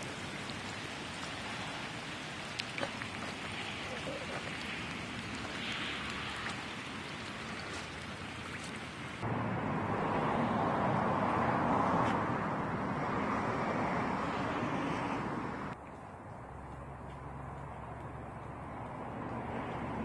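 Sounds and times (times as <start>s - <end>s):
rain pattering on pavement: 0.0s - 9.2s.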